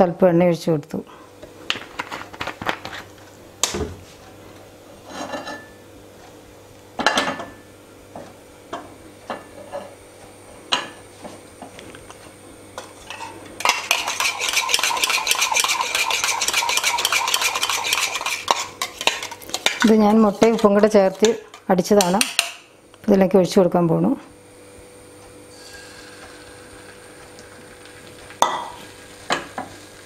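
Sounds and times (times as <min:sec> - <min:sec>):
oil sizzling in a pan: 0:13.1 - 0:19.9, 0:25.5 - 0:30.0.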